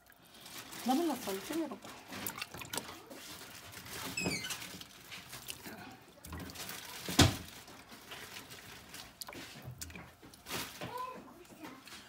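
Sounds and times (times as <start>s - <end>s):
kitchen handling sounds: 6.3s - 12.0s.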